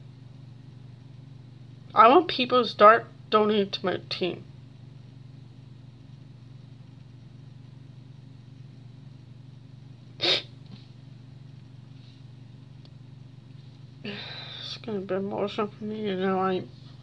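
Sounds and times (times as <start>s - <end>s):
steady low hum: 0.0s - 17.0s
person sneezing: 10.2s - 10.6s.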